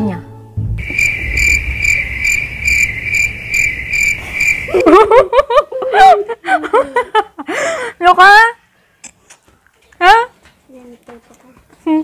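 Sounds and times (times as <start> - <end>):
low rumble: 0.8 - 4.9
insect chirping trill: 0.8 - 5.0.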